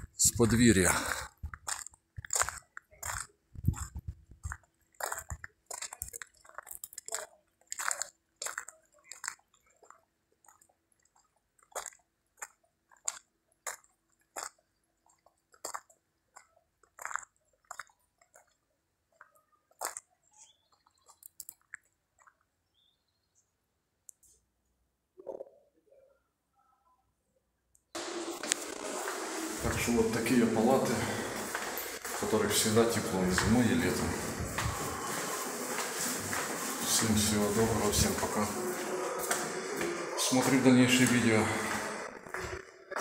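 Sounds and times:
footsteps on gravel: 0.4s - 9.9s, 28.0s - 43.0s.

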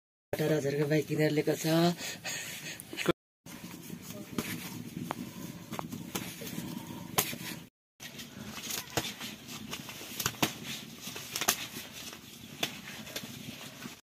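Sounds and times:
feathers snapping and rustling: 7.2s - 14.0s.

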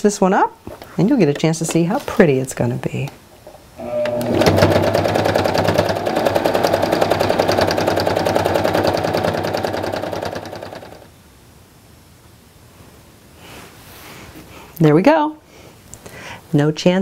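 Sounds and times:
sewing machine stitching: 3.8s - 11.1s.

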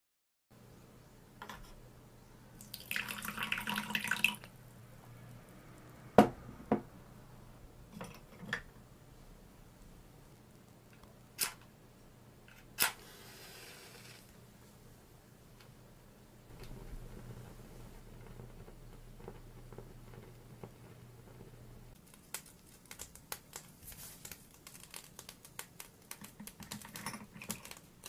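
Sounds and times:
pouring into tiny pot: 2.6s - 4.6s
match striking and flaring: 12.8s - 14.4s.

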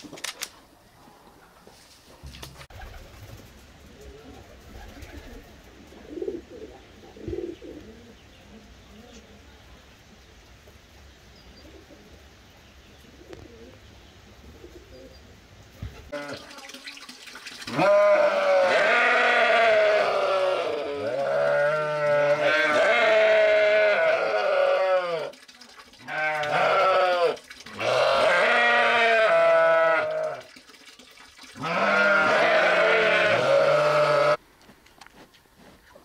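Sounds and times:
sheep bleating: 17.7s - 25.3s, 26.0s - 30.4s, 31.6s - 34.4s.

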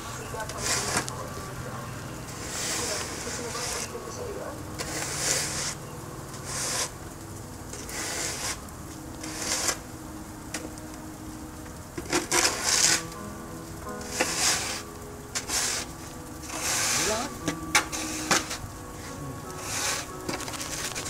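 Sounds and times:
snow shovel scraping concrete: 0.0s - 1.3s, 2.3s - 7.0s, 7.7s - 8.6s, 9.2s - 9.8s, 12.0s - 13.2s, 14.0s - 21.0s.

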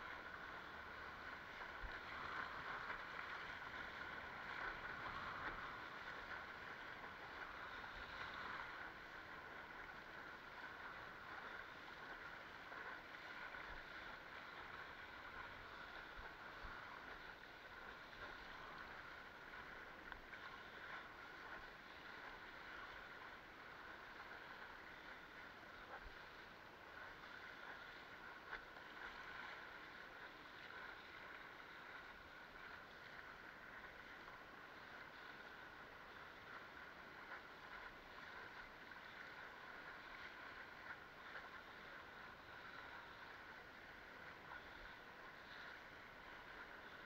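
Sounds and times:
water rushing along a board: 0.0s - 47.0s.

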